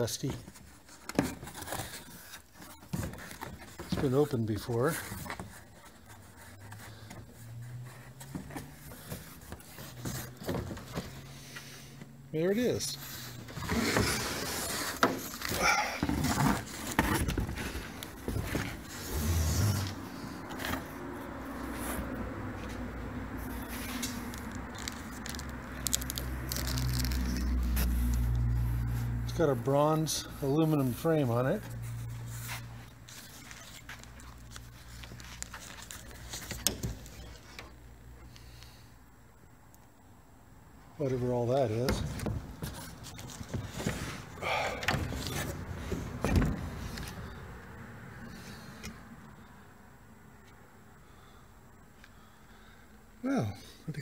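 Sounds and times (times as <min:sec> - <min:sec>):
cardboard box scraping: 0:00.3 - 0:11.5, 0:13.0 - 0:22.2
plastic wrap rustling: 0:23.7 - 0:28.0.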